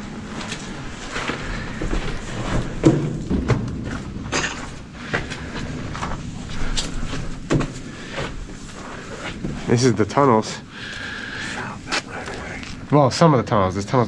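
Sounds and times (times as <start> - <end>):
footsteps with knocks and scuffs: 0.2 - 10.0.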